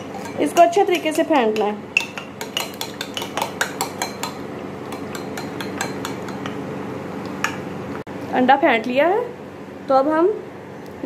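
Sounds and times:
spoon clinking in ceramic bowl: 2.0 - 6.6.

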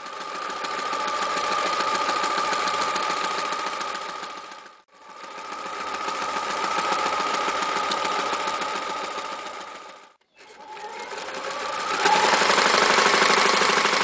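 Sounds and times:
electric sewing machine stitching: 0.0 - 14.0.

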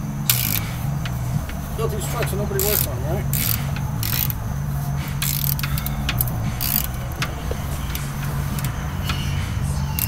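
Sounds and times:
hand ratchet clicking: 0.3 - 10.0.

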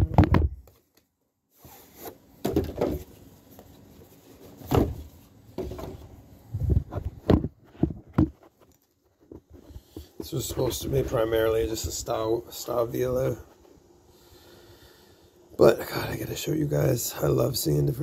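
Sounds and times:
phone handling knocks and bumps: 6.7 - 8.4.

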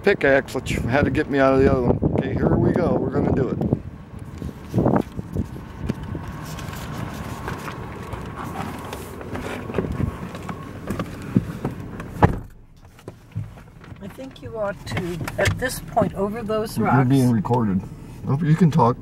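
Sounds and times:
knocks and rustling: 4.3 - 16.2
car door shutting: 7.4 - 16.2.

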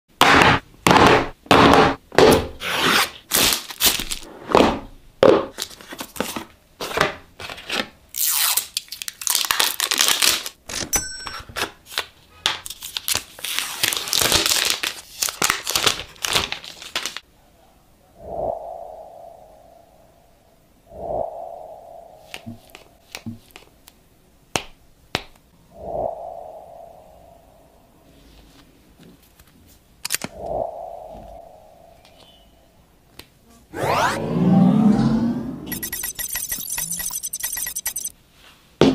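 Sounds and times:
packaging tearing: 8.2 - 10.6, 12.6 - 17.2
plastic film crinkling: 8.8 - 10.6, 12.7 - 17.2.

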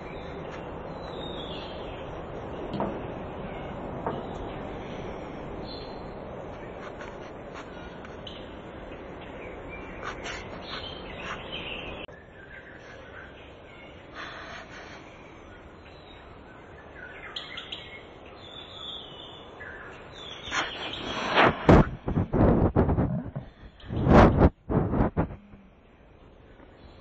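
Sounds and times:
small birds chirping: 0.0 - 21.3, 22.1 - 27.0
steady outdoor hum: 0.0 - 27.0
rubbing and knocking on microphone: 21.4 - 25.6.

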